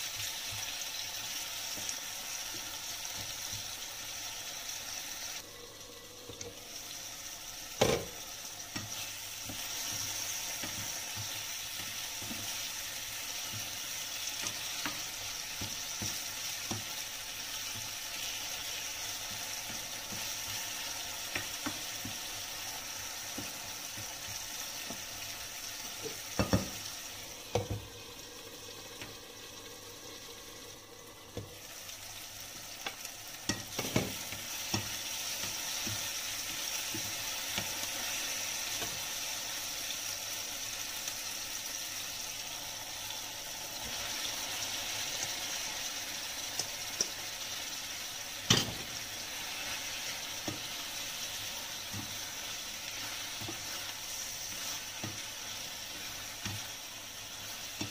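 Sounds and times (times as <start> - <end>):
onion and tomato sizzling in pan: 0.0 - 57.9
spatula scraping and knocking pan: 26.0 - 26.8, 32.8 - 36.1, 51.8 - 56.8.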